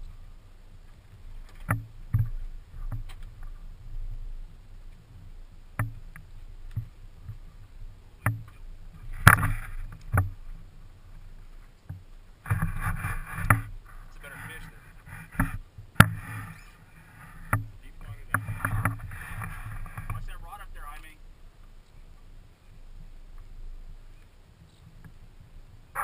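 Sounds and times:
steady low hum: 0.0s - 26.0s
knocks and clicks of gear: 0.9s - 3.6s, 8.2s - 10.4s, 11.7s - 13.7s, 14.5s - 16.6s, 17.4s - 20.4s.

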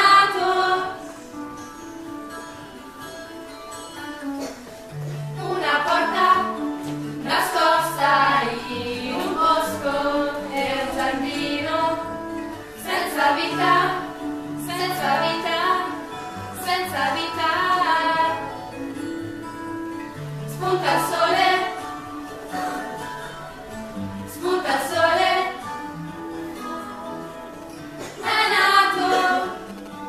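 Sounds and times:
instrumental accompaniment: 0.0s - 30.0s
woman singing: 5.4s - 12.2s, 12.8s - 18.6s, 20.6s - 21.8s, 24.3s - 25.6s, 28.2s - 29.6s.

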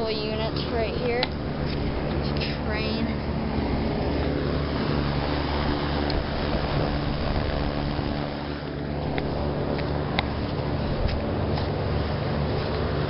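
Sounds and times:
rooftop unit machine hum: 0.0s - 13.0s.

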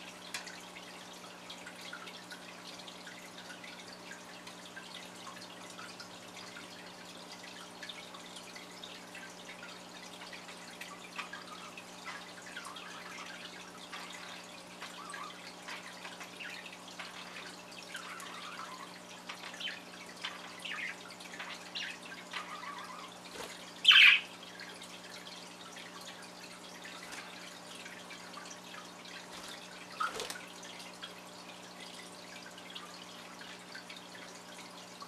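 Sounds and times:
budgerigars chattering: 19.5s - 23.1s, 23.8s - 24.3s
budgerigar loud sharp call: 23.9s - 24.3s.

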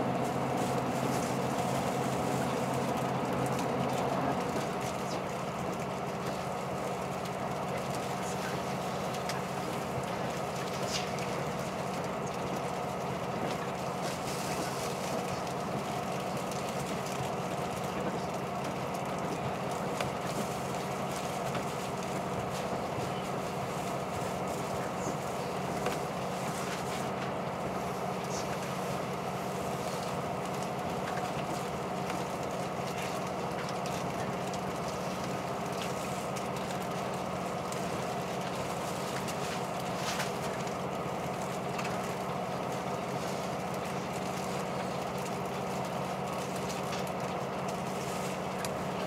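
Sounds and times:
train engine drone inside cabin: 0.0s - 49.0s.

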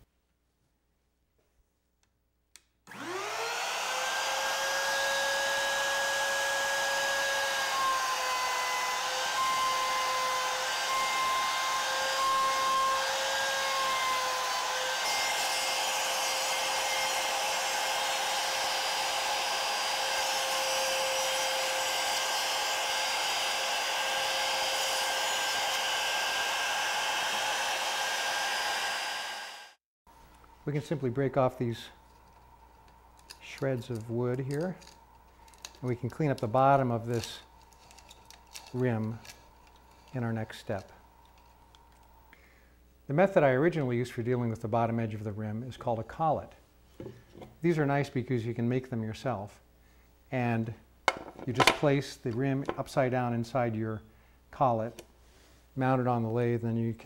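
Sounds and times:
router motor whining: 2.9s - 29.8s.

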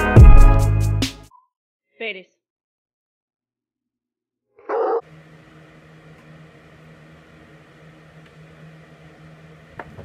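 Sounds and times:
dog barking: 4.6s - 5.0s.

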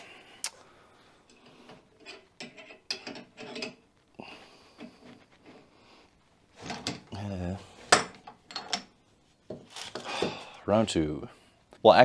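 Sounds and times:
metal tools clicking and clinking: 1.3s - 3.8s, 7.9s - 8.9s.

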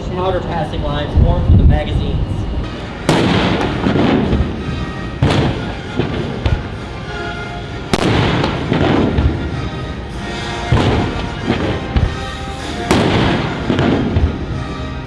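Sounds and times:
background music: 2.2s - 15.0s
cannon booms with echo: 3.1s - 4.6s, 5.2s - 6.7s, 8.0s - 9.6s, 10.7s - 12.3s, 12.9s - 14.6s.

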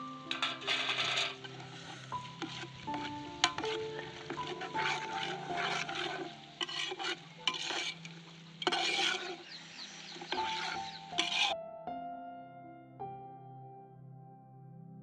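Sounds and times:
food sauteing in pot: 0.0s - 11.6s
metal spatula scraping pot: 0.0s - 11.6s.

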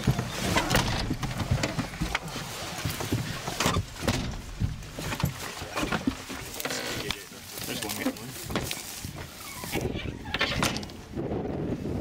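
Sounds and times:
knocks and bumps: 0.0s - 6.5s
clothing rustling against microphone: 0.0s - 11.1s.

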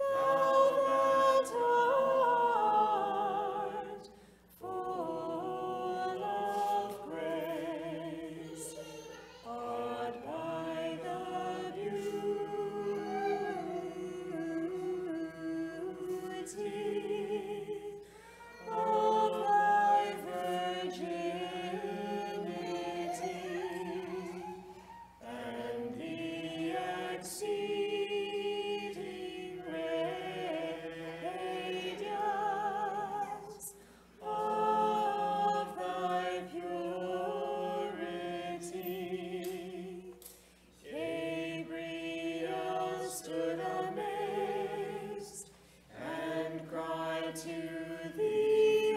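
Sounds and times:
choir singing a hymn unaccompanied: 0.0s - 48.9s.

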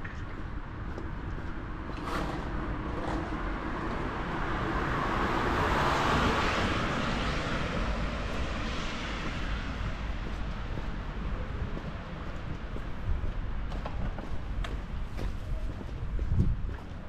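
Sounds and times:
vehicle passing by: 1.9s - 10.0s.

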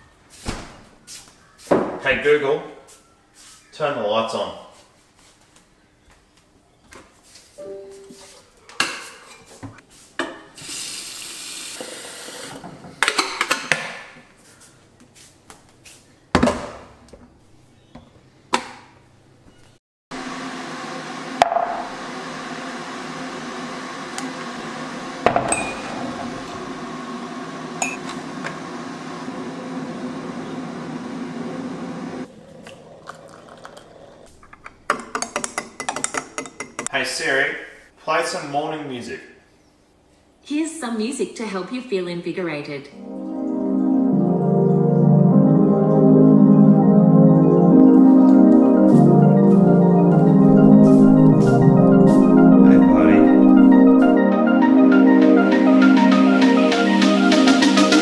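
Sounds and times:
water running: 24.1s - 36.9s, 42.9s - 54.8s
mug and utensils clinking: 33.0s - 36.9s.

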